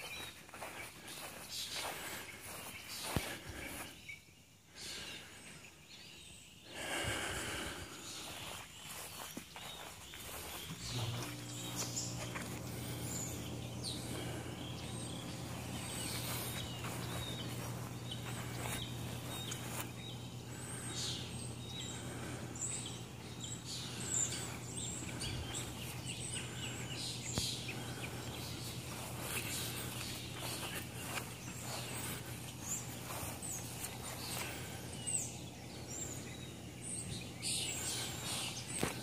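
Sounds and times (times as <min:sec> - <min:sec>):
birds chirping: 0:00.0 - 0:39.0
steady low hum: 0:00.0 - 0:39.0
light rustles and steps: 0:08.3 - 0:20.0.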